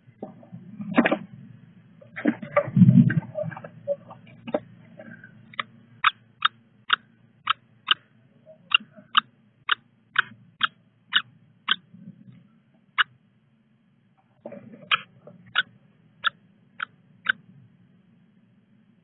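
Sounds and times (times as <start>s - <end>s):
chicks peeping: 5.4s - 8.0s, 8.6s - 11.9s, 14.8s - 17.4s.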